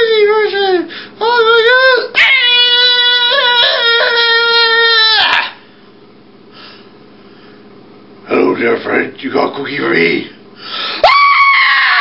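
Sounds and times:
high-pitched wailing cry: 0:01.2 - 0:05.6, 0:11.0 - 0:12.0.

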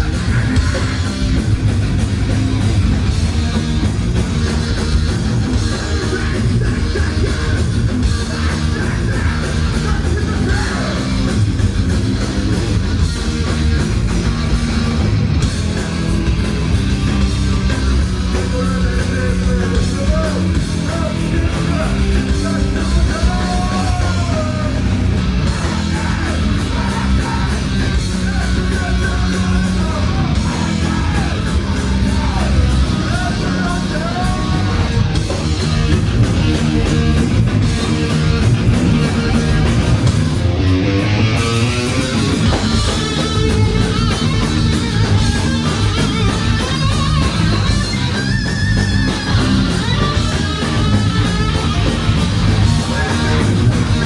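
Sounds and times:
loud rock music: 0:00.0 - 0:54.0
person singing: 0:18.5 - 0:35.4.

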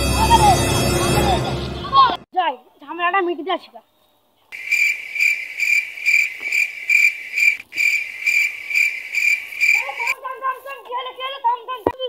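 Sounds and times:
insect chirping: 0:03.9 - 0:10.2.

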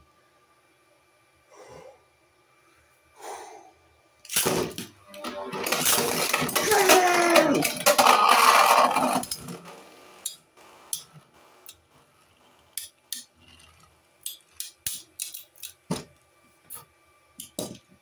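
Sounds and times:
spinning tops clicking: 0:04.3 - 0:09.6
spinning tops grinding and clattering: 0:04.3 - 0:09.8.

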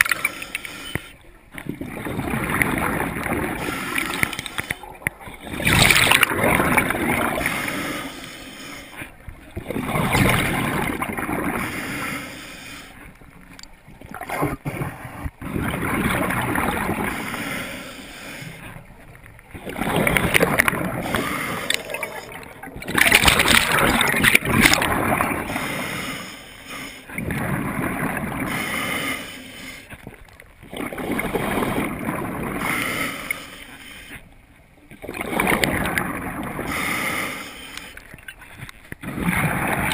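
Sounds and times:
rushing breath through regulator: 0:00.0 - 0:01.2, 0:03.2 - 0:09.2, 0:11.4 - 0:13.1, 0:16.9 - 0:18.8, 0:19.9 - 0:27.2, 0:28.2 - 0:30.0, 0:36.4 - 0:38.2
gurgling exhaled bubbles: 0:01.5 - 0:08.1, 0:09.3 - 0:12.2, 0:14.0 - 0:17.7, 0:18.7 - 0:26.1, 0:27.1 - 0:29.2, 0:30.6 - 0:33.1, 0:34.9 - 0:37.3, 0:39.0 - 0:39.9.

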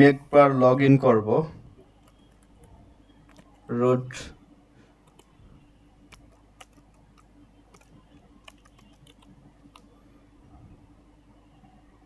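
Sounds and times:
computer keyboard keystrokes: 0:02.0 - 0:03.6, 0:06.1 - 0:09.9.

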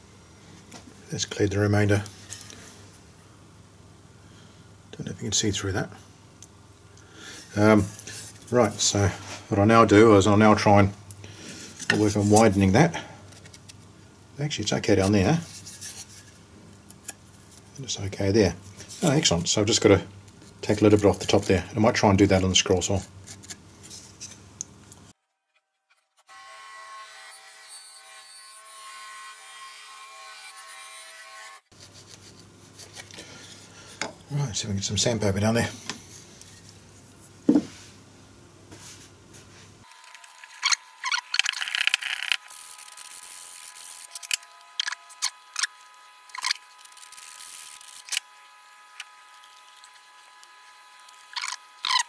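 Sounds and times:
scroll saw whining cutting wood: 0:39.9 - 0:52.0.

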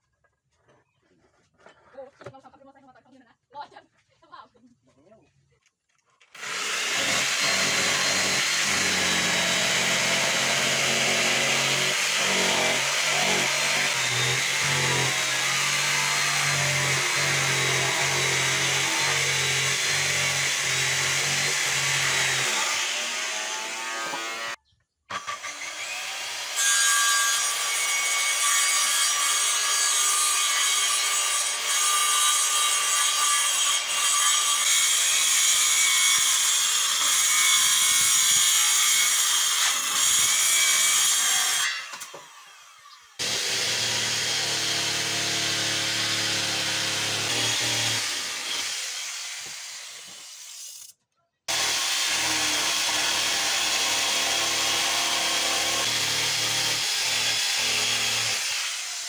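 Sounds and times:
jigsaw cutting wood: 0:06.3 - 0:26.6, 0:33.5 - 0:50.6, 0:51.5 - 0:59.0.

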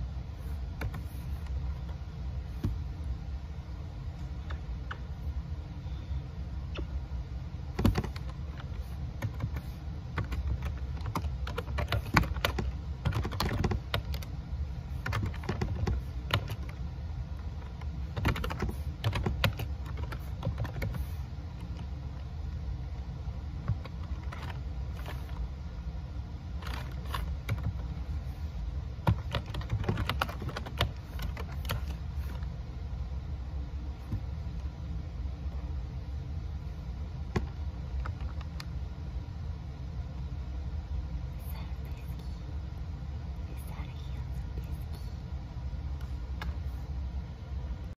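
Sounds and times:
laptop keys clicking: 0:07.7 - 0:14.3, 0:15.0 - 0:16.8, 0:17.5 - 0:21.0, 0:23.6 - 0:25.4, 0:26.6 - 0:27.9, 0:29.0 - 0:32.5, 0:37.3 - 0:38.7.

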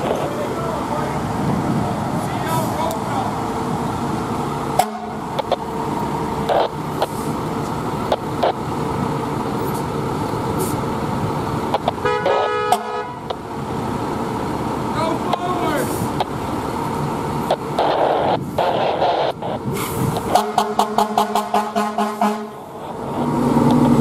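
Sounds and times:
diesel engine running: 0:00.0 - 0:24.0
fire engine horn blast: 0:04.8 - 0:05.2, 0:12.0 - 0:13.3, 0:20.3 - 0:22.7
sharp clicks: 0:11.7 - 0:12.0.

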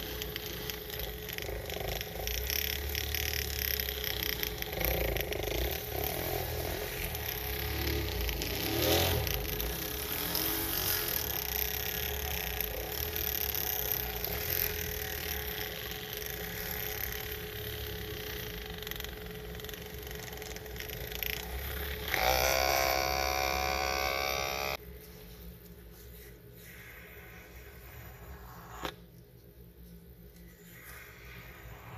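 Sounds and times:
motorised rotary scrubber running: 0:00.0 - 0:24.8.

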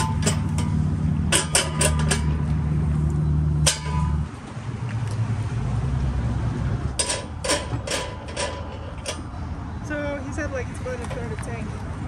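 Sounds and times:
metal clinks of hose fitting: 0:00.0 - 0:02.4
engine idling hum: 0:00.0 - 0:12.0.

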